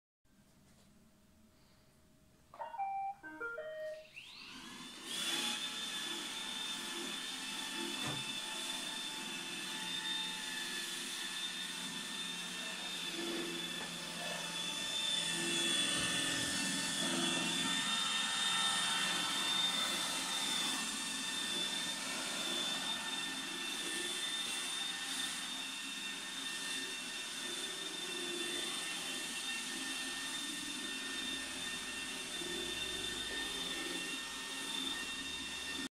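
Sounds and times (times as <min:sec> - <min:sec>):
robot vacuum beeping tune: 0:02.6 - 0:04.6
vacuum motor whine: 0:04.0 - 0:35.9.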